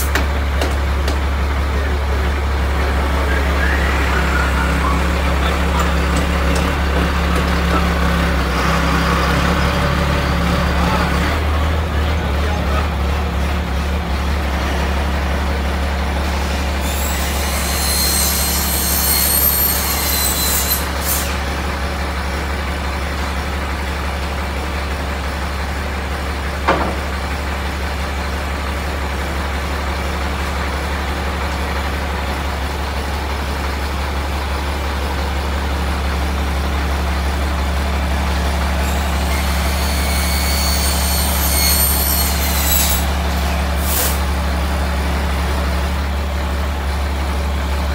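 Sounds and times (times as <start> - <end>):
diesel engine humming: 0.0 - 17.9, 20.8 - 47.9
high-pitched squeal: 2.6 - 11.0, 16.4 - 21.4, 38.8 - 44.4.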